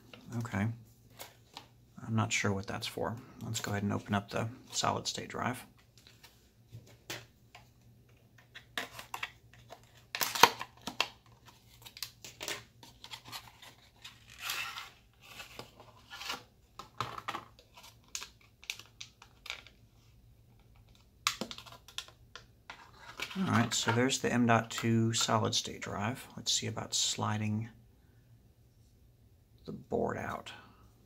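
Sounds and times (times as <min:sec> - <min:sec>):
plastic and cardboard crinkling: 0:08.4 - 0:19.8.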